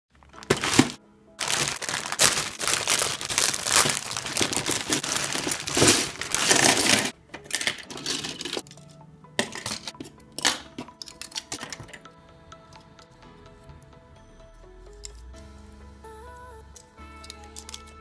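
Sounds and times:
plastic bag crinkling: 0:00.2 - 0:08.6.

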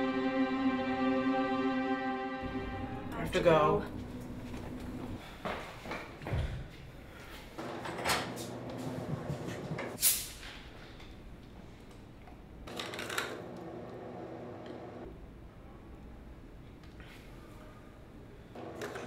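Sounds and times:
low room hum: 0:02.3 - 0:10.0
hiss of escaping carbonation: 0:10.0 - 0:10.5.

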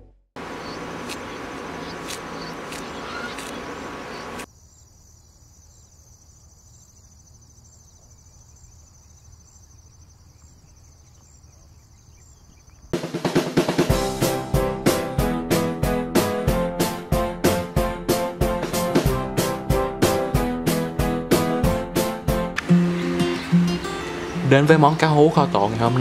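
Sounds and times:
insects chirring: 0:00.4 - 0:13.0
music: 0:13.0 - 0:26.0.

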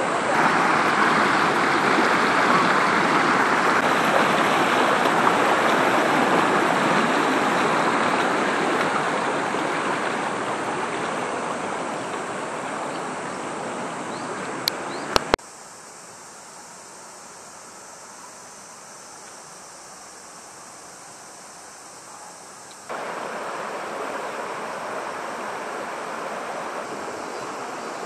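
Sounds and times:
river water rushing: 0:00.0 - 0:15.4, 0:22.8 - 0:28.0.

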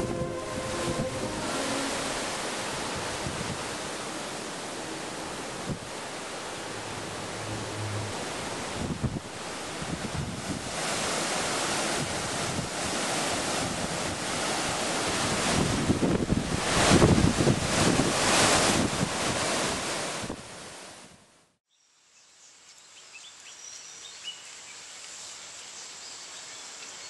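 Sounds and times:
rushing wind-like noise: 0:00.0 - 0:21.0.

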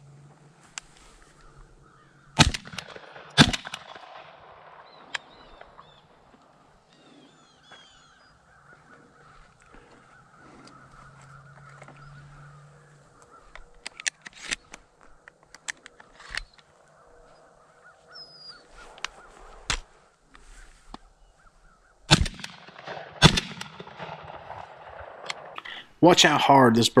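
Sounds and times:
faint bird calls: 0:00.9 - 0:02.4, 0:04.4 - 0:22.1
shotgun shots with echo: 0:02.4 - 0:05.8, 0:22.1 - 0:25.6
clicks and rustles: 0:13.2 - 0:16.9.

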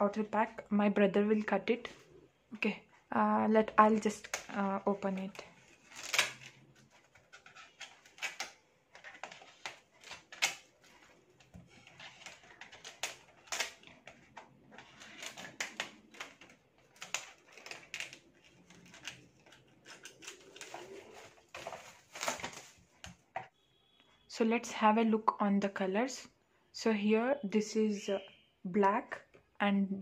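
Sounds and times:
plastic film crackling: 0:03.6 - 0:23.1
scissors snipping plastic: 0:03.8 - 0:23.2.

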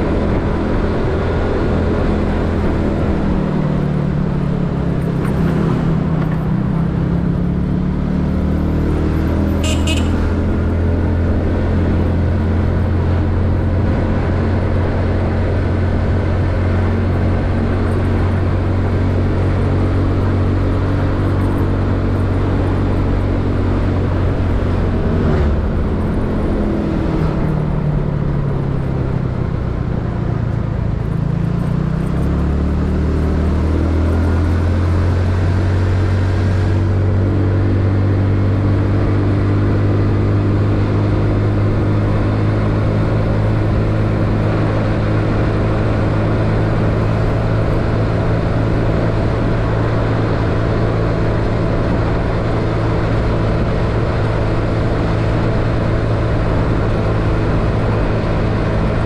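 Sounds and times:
road noise: 0:00.0 - 0:59.0
scooter engine running: 0:09.4 - 0:26.6.

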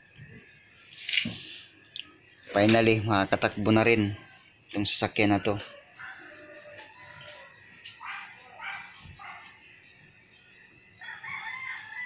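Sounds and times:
high insect trill: 0:00.0 - 0:12.0
distant dog barks: 0:06.0 - 0:09.6.

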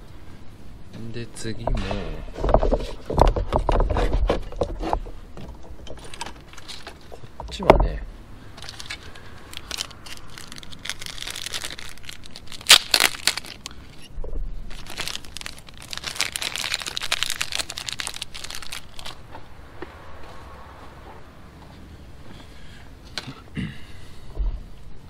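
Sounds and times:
sharp cracks: 0:08.6 - 0:13.7, 0:14.7 - 0:19.2
plastic crinkling: 0:08.6 - 0:13.8, 0:14.7 - 0:19.2.

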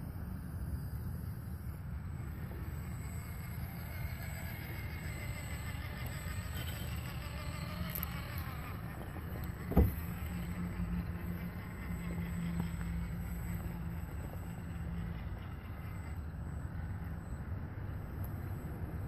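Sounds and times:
steady low rumble: 0:00.0 - 0:19.0
electric motor whining: 0:00.8 - 0:19.0
sharp thump: 0:09.7 - 0:10.0.

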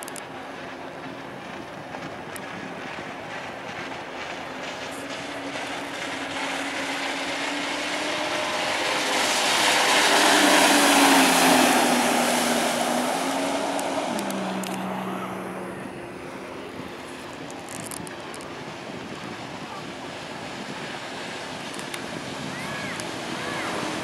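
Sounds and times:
jet ski engines running: 0:00.0 - 0:24.0
rush of water: 0:00.0 - 0:24.0.

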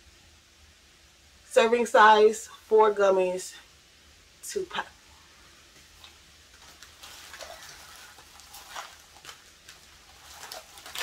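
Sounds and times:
packet rustling and tapping: 0:05.9 - 0:11.0.

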